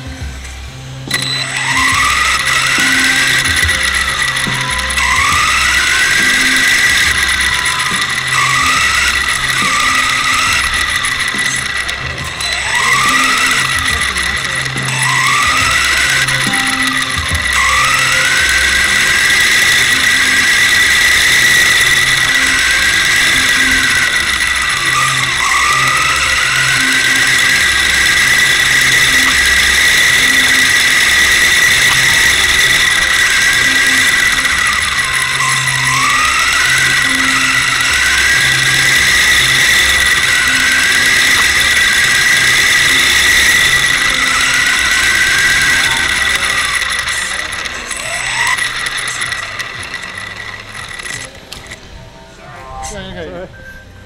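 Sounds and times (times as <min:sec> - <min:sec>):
electric motor whining: 0:00.0 - 0:54.0
second whine changing pitch: 0:00.0 - 0:54.0.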